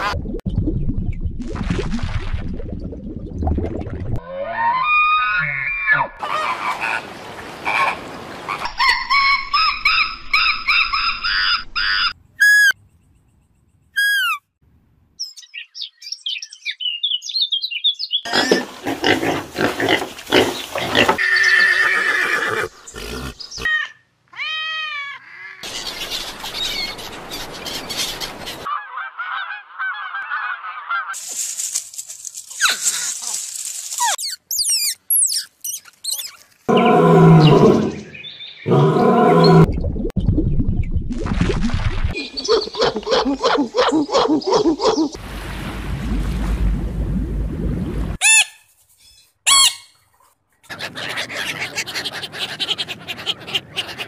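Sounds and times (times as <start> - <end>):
high arched chirping calls: 8.8 - 12.8, 13.9 - 14.5, 34.0 - 36.4
animal calls: 42.2 - 45.2, 50.7 - 54.0.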